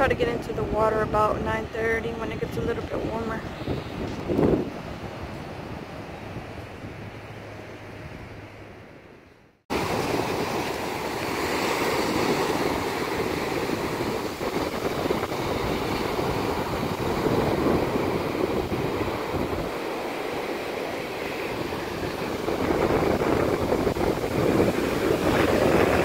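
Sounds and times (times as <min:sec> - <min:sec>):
wind on microphone: 0:00.0 - 0:08.5, 0:09.7 - 0:26.0
ocean surf breaking: 0:09.7 - 0:26.0.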